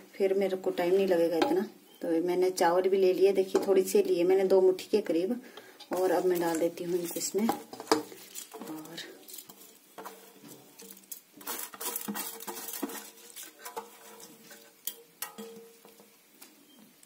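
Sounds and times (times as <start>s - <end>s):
rice grains rustling: 5.9s - 16.5s
bowl clinking against cooker rim: 11.8s - 16.0s.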